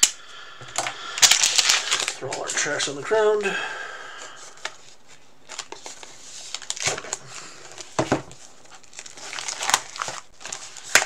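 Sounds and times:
plastic wrapping crinkling and tearing: 0:01.0 - 0:02.9, 0:04.6 - 0:11.0.

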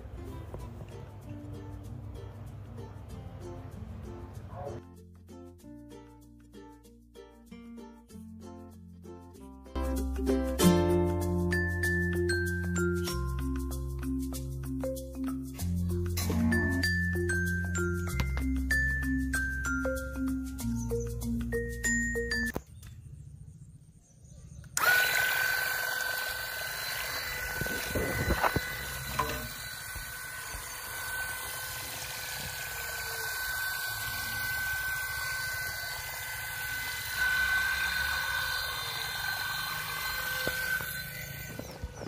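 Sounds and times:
small motor high whine: 0:24.6 - 0:42.0.

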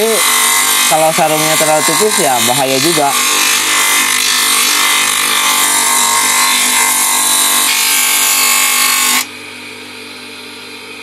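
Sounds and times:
sander motor hum: 0:00.0 - 0:07.8.

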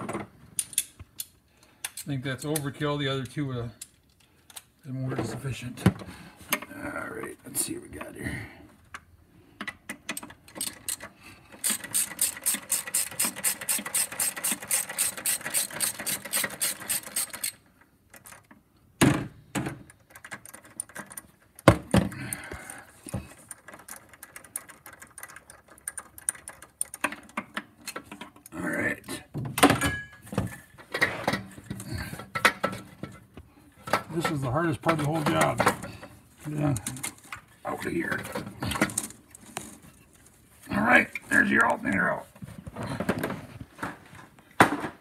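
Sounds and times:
ratchet clicking: 0:10.6 - 0:17.6.

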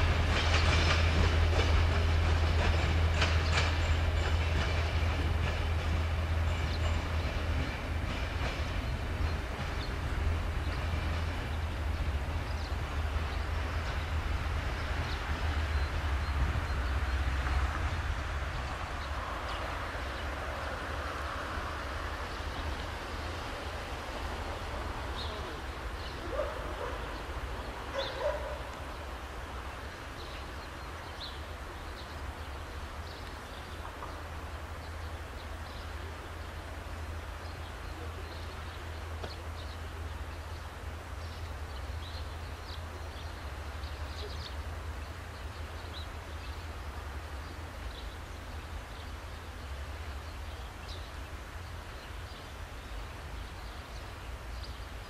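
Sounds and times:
dog barking: 0:26.3 - 0:27.1, 0:27.9 - 0:28.7.

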